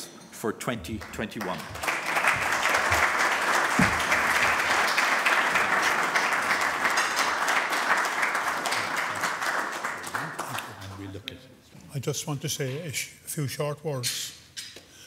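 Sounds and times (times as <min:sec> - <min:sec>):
audience applauding: 0:00.9 - 0:11.2.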